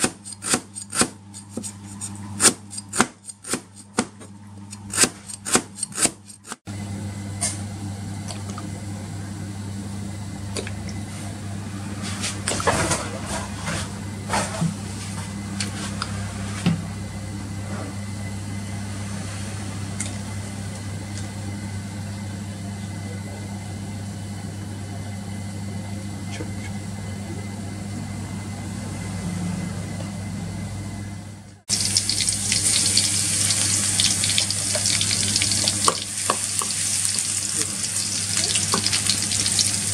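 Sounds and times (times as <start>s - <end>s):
cleaver chopping on cutting board: 0.0s - 1.8s, 2.4s - 6.2s
steady low hum: 0.0s - 39.9s
food sizzling in hot oil: 31.7s - 39.9s.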